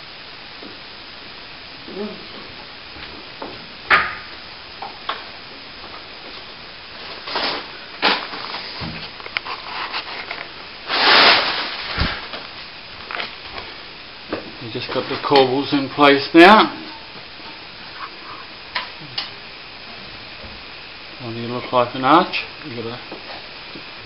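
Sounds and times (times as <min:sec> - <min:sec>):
steady hiss: 0:00.0 - 0:24.0
scraping rustle: 0:07.0 - 0:12.5.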